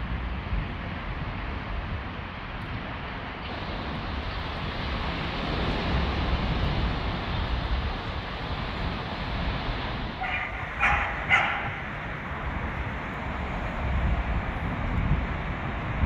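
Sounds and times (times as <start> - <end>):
road traffic: 0.0 - 16.0
wind rumble: 0.0 - 16.0
dog barking: 10.2 - 12.0.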